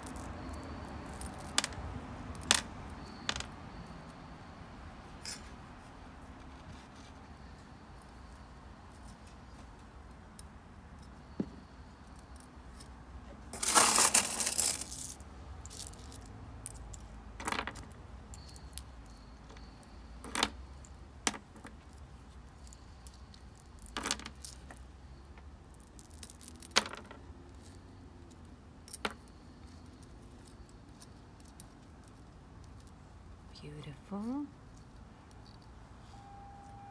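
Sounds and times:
pebbles clicking and rattling: 0.0s - 3.6s, 13.5s - 33.0s.

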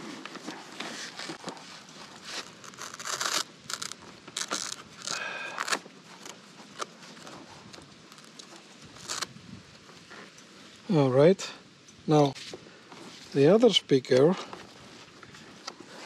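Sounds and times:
rustling and scraping fabric: 0.0s - 5.1s, 12.3s - 13.4s.

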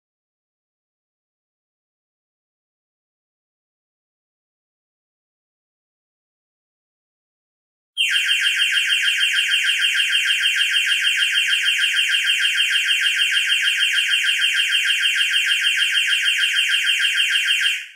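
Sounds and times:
electronic timer alarm buzzing: 8.0s - 17.9s.

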